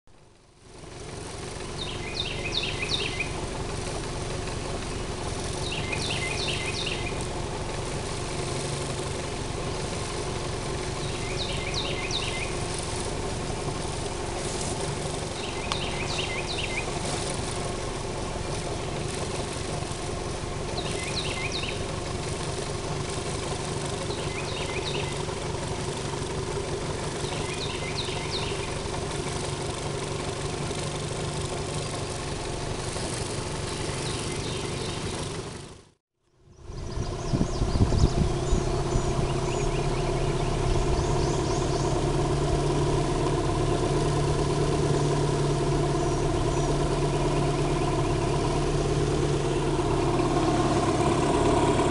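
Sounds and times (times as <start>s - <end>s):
outboard motor running: 0.1s - 51.9s
bird singing high notes: 5.6s - 7.2s.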